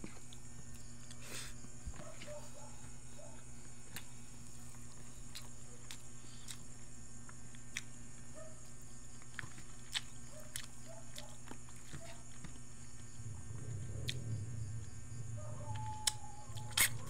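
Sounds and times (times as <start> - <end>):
steady low hum: 0.0 - 17.0
person chewing with mouth clicks: 4.7 - 6.7, 7.6 - 7.9, 9.2 - 12.6, 16.0 - 17.0.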